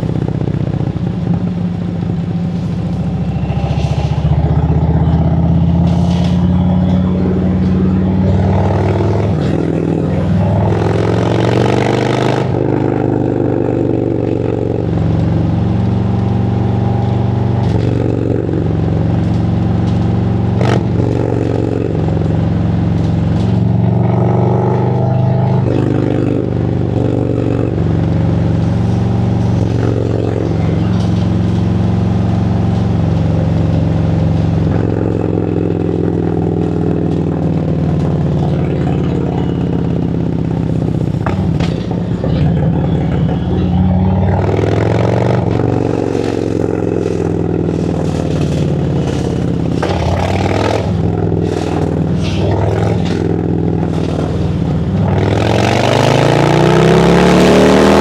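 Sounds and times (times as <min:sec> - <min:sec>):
rush of noise: 0:00.0 - 0:18.6
motorcycle engine revving: 0:00.0 - 0:58.0.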